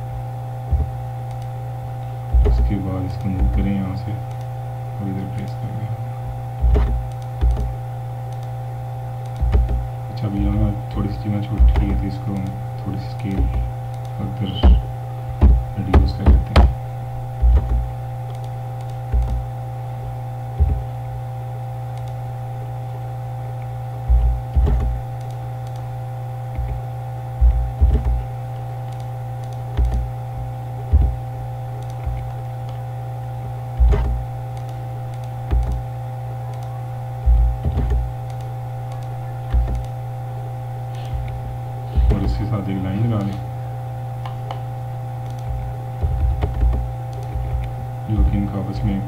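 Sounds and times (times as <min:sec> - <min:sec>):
higher steady tones: 0:00.0 - 0:49.0
steady electrical hum: 0:00.0 - 0:49.0
mouse and keyboard clicks: 0:06.6 - 0:07.7, 0:17.4 - 0:19.4, 0:28.8 - 0:30.1, 0:31.8 - 0:32.8, 0:33.8 - 0:35.8, 0:37.6 - 0:39.9, 0:45.2 - 0:47.7.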